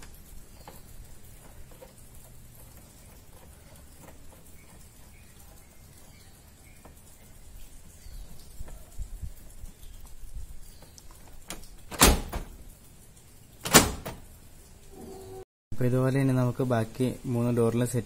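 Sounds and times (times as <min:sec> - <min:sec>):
loud sharp door lock clunks: 0:11.5 - 0:12.5, 0:13.6 - 0:14.2.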